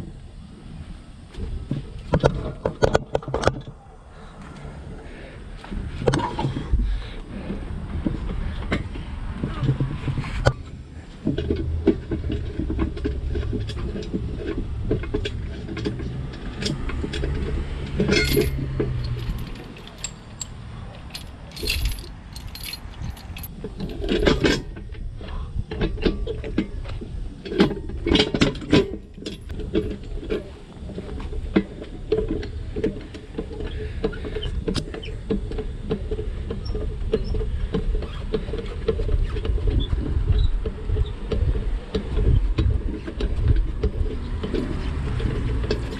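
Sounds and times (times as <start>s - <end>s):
steady low rumble: 3.7s - 34.6s
metal parts clinking: 16.5s - 24.6s, 28.6s - 29.5s.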